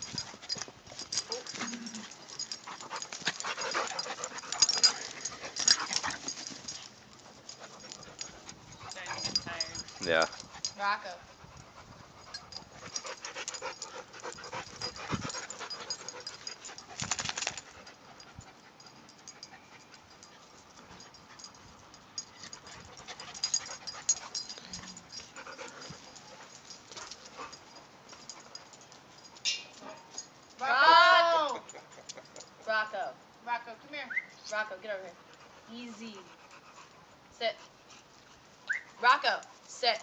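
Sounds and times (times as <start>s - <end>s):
dogs scuffling: 0.0s - 10.8s, 11.6s - 18.0s
dogs panting: 0.0s - 29.4s, 31.5s - 32.7s, 34.8s - 39.7s.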